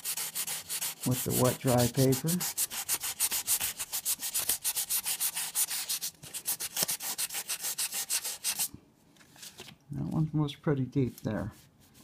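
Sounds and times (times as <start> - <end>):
sandpaper rubbing on metal: 0.0 - 8.7.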